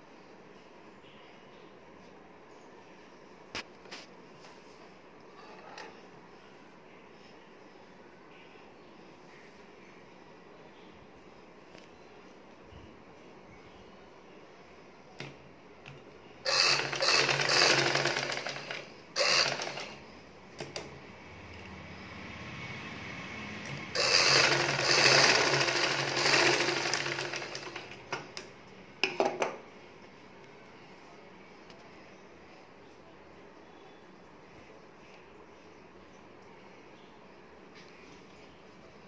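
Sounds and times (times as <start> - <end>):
sewing machine stitching: 16.5 - 20.0, 23.6 - 28.0.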